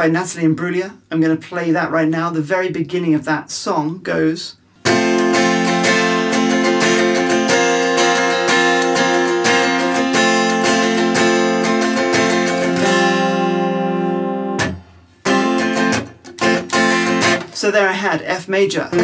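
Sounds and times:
electric guitar strumming chords: 4.8s - 17.8s, 18.8s - 19.0s.

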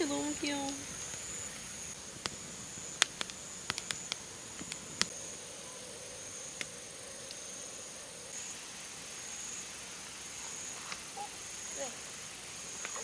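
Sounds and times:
wood fire crackling and popping: 0.0s - 5.2s
night insects calling: 0.0s - 13.0s.

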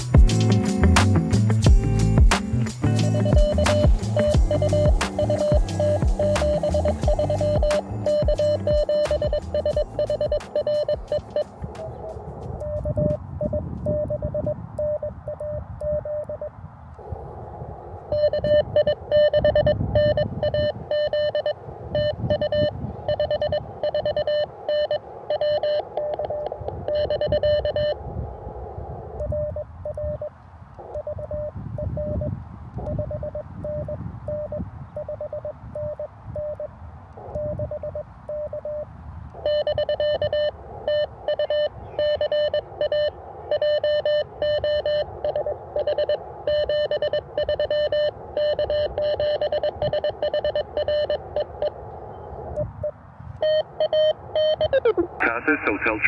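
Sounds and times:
morse code tone: 2.8s - 16.5s, 18.1s - 28.0s, 30.8s - 51.7s, 53.4s - 56.0s
radio static: 2.8s - 30.2s, 39.4s - 51.8s, 53.4s - 56.0s.

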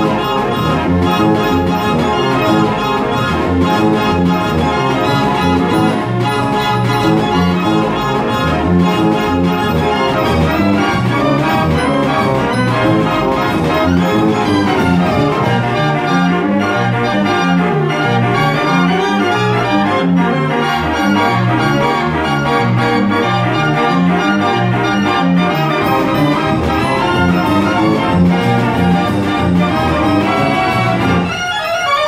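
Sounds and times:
fairground organ playing: 0.0s - 32.0s
steady bass beat: 25.7s - 31.3s.

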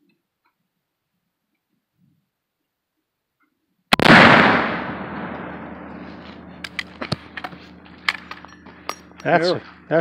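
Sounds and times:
gunshot boom with echo: 3.9s - 6.0s.

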